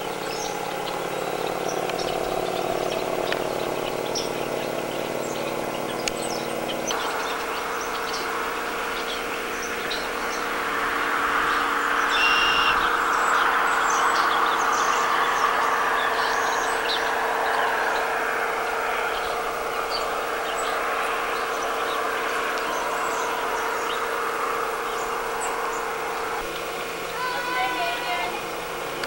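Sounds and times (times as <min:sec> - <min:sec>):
bird chirps: 0:00.0 - 0:29.0
steady hum: 0:00.0 - 0:29.0
steady rushing noise: 0:00.0 - 0:29.0
whistled bird note: 0:01.3 - 0:17.1.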